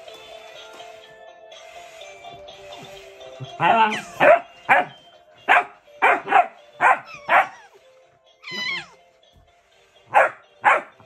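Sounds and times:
faint background music: 0.0 - 11.0
dog barking: 4.2 - 4.9, 5.5 - 7.6, 10.1 - 10.9
dog whining yelp: 6.8 - 7.8, 8.4 - 9.0.

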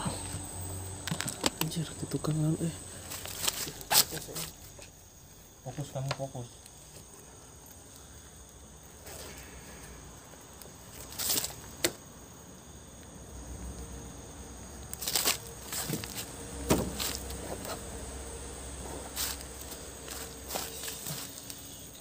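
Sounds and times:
insects trilling: 0.0 - 22.0
dry leaves crunching: 2.9 - 4.6, 10.9 - 11.7, 14.9 - 18.0, 18.7 - 22.0.

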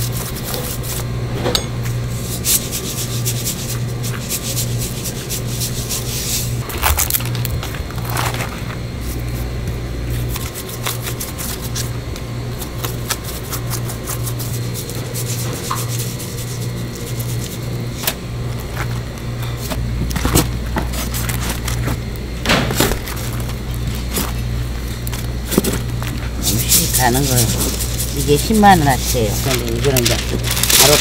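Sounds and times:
pulsing low hum: 0.0 - 31.0
gloved hands handling fish: 22.9 - 31.0.

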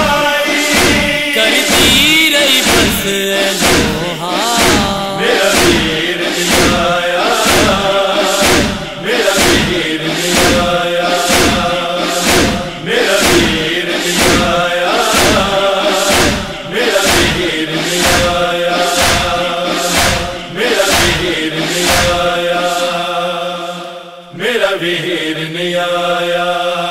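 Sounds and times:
rhythmic chest-beating thuds: 0.0 - 25.3
chorus of voices chanting: 0.0 - 26.9.

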